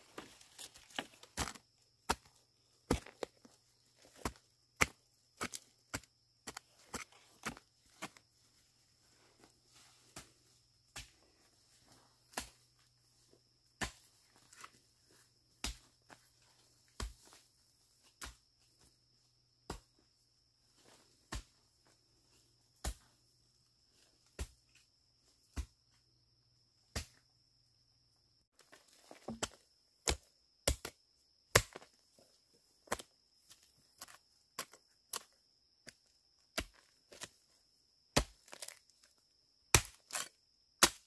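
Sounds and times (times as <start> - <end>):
digging tool chopping into soil: 34.0 - 37.3, 38.2 - 38.9, 39.7 - 41.0.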